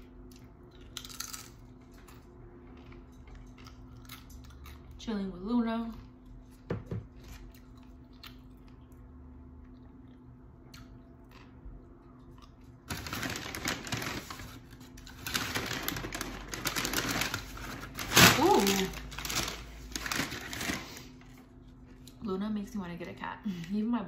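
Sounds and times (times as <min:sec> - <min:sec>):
chips crinkling while eaten: 0:00.2 - 0:05.0, 0:09.9 - 0:22.2.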